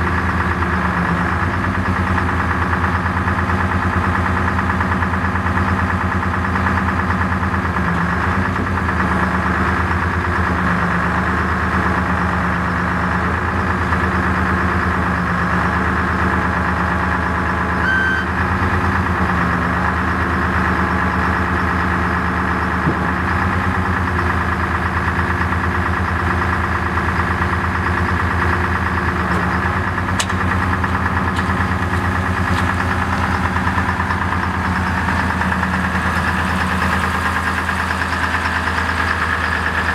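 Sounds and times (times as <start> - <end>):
truck engine idling: 0.0 - 39.9.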